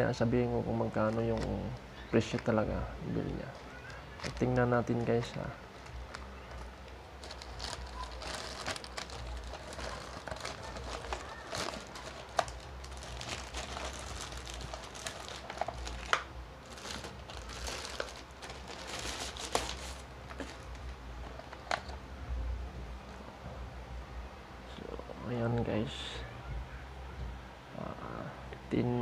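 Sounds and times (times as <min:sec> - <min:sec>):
plastic pouch crinkling: 0:03.4 - 0:21.9.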